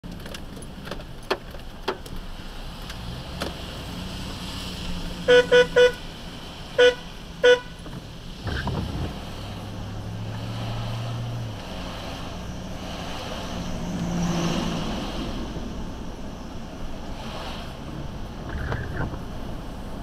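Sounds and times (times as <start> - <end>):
car driving hum: 0.0 - 20.0
car horn beeps: 5.2 - 6.1, 6.7 - 7.9.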